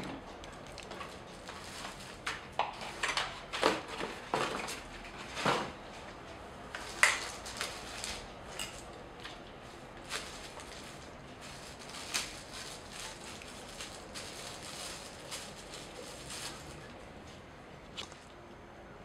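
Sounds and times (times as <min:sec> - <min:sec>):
plastic bag crinkling: 0:00.4 - 0:03.3, 0:06.8 - 0:08.9, 0:09.7 - 0:17.1.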